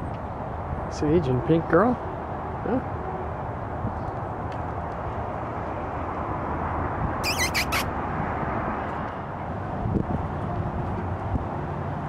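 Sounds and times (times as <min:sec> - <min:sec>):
outdoor background noise: 0:00.0 - 0:12.0
high wavering squeaks: 0:07.2 - 0:07.9.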